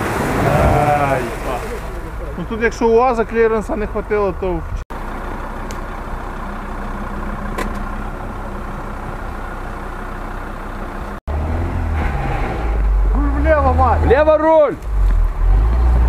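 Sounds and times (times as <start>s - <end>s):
wheels churning through mud and water: 0.0s - 11.2s
car engine running: 0.0s - 11.7s
deep engine rumble: 0.0s - 16.0s.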